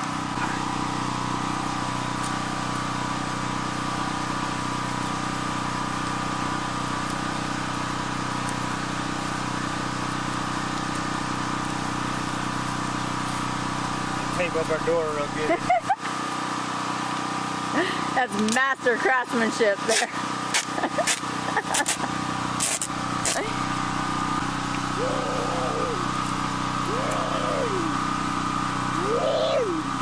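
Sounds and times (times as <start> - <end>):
motor humming steadily: 0.0 - 30.0.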